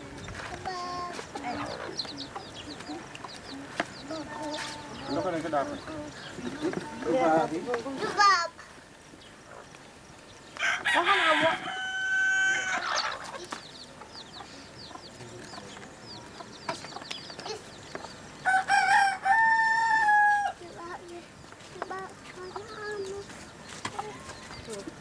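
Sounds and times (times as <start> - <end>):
faint bird chirping: 0.0 - 10.6, 12.5 - 25.0
rooster crowing: 10.6 - 13.2, 18.4 - 20.6.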